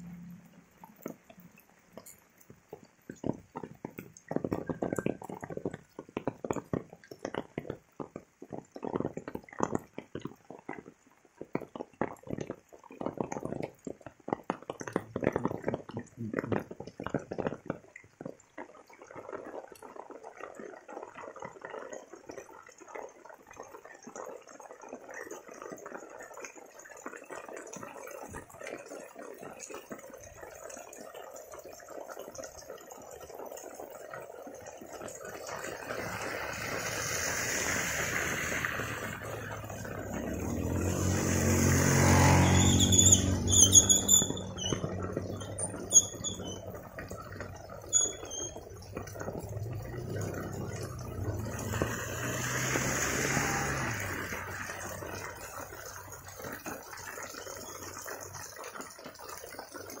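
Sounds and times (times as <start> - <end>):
heavy rain hissing on road: 35.0 - 58.4
motorbikes passing: 35.8 - 46.7, 48.9 - 55.8.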